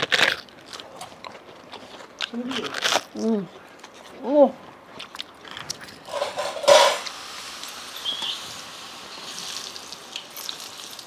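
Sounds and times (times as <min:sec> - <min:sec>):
food sizzling in hot oil: 0:06.1 - 0:11.0.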